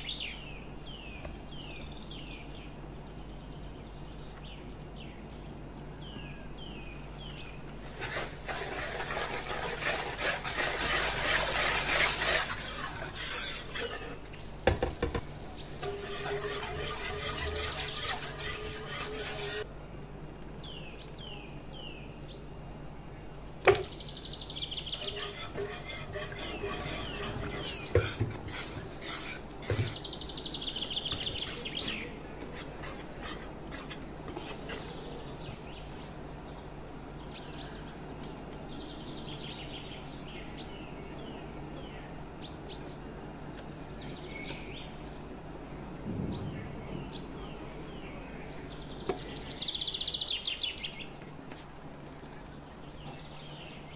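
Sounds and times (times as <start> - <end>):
birds chirping: 0.0 - 7.8, 10.5 - 19.7, 20.6 - 53.9
whisk scraping metal pan: 7.8 - 14.2, 15.8 - 19.7, 25.0 - 30.0, 31.3 - 34.8.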